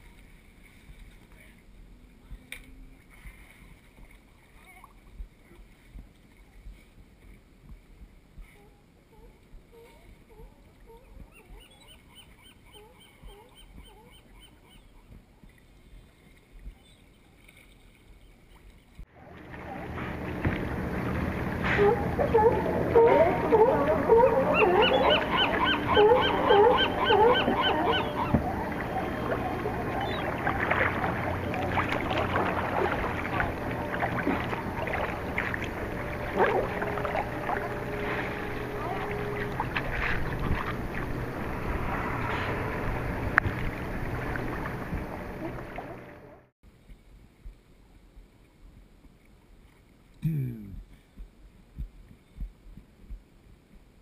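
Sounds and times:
water lapping: 0.0s - 46.5s
rushing wind and water: 0.0s - 50.1s
gulls calling: 10.3s - 15.2s, 18.5s - 46.5s
short sharp splashes: 19.2s - 46.2s.

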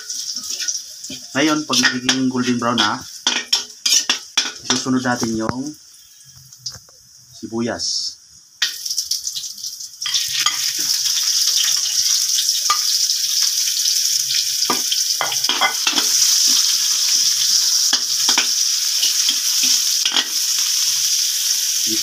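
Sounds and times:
onions sizzling in hot oil: 0.0s - 22.0s
metal spatula scraping pan: 1.7s - 4.8s.

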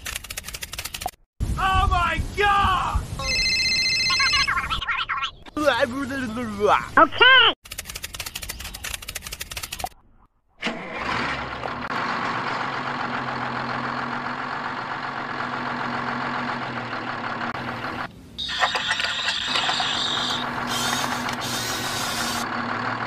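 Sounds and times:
tractor motor humming: 10.6s - 23.0s.

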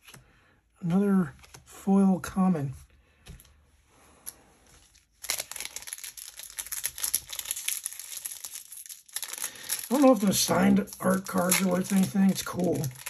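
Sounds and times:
foil wrapper crinkling and tearing: 4.8s - 13.0s.

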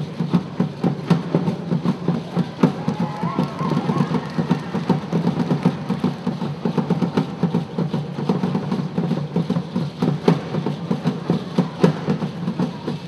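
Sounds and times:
hand drums playing fast rhythm: 0.0s - 13.0s.

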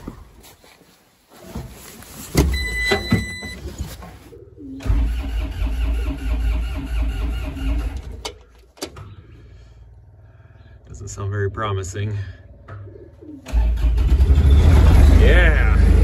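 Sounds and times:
diesel engine cranking: 4.8s - 10.6s, 13.4s - 16.0s.

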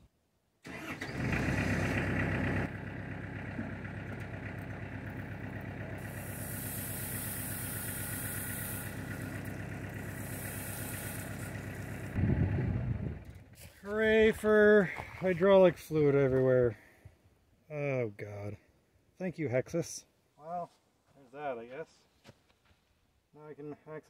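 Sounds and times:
tractor diesel engine running: 0.7s - 15.8s.

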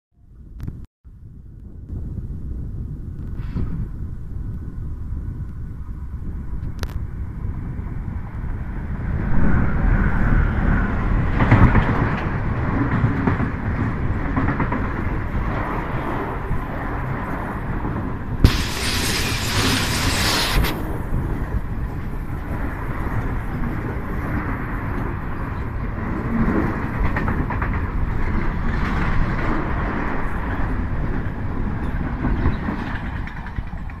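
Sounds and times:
freight train passing: 7.2s - 34.0s
hissing noise: 18.4s - 21.1s.

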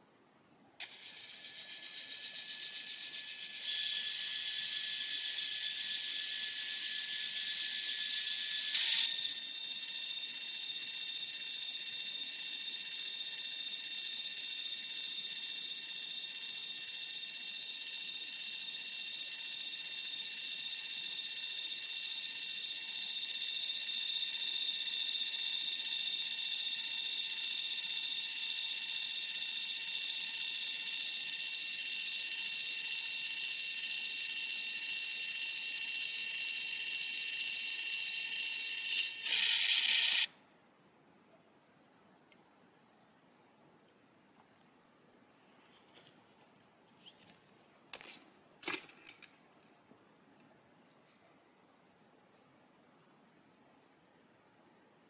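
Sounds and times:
photo printer whirring: 28.9s - 40.3s.

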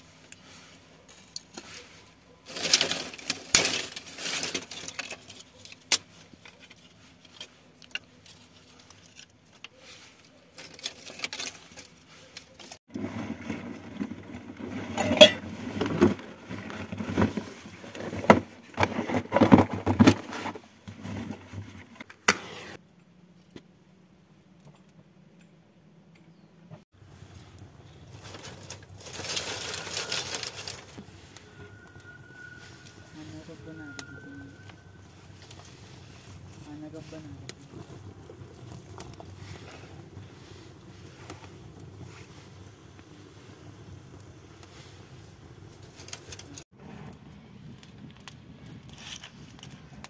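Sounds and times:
dry sticks clattering: 1.0s - 12.8s.

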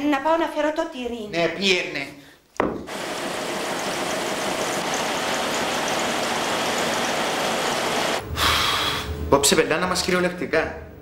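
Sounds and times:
printing press running: 2.9s - 8.2s.

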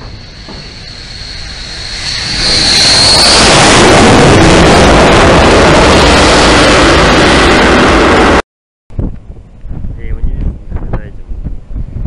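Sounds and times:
high turbine whine: 0.0s - 8.4s
jet engine roar: 0.0s - 8.4s.

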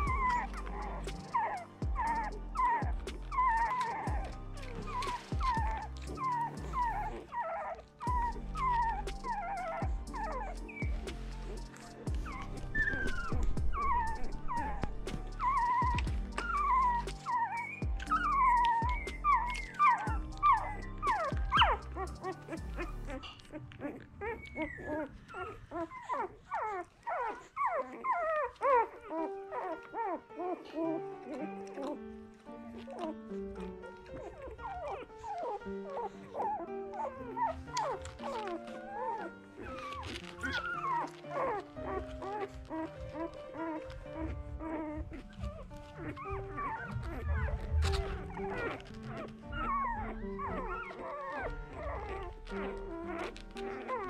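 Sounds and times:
background music: 0.0s - 54.0s
puppies squealing and whimpering: 0.0s - 54.0s.

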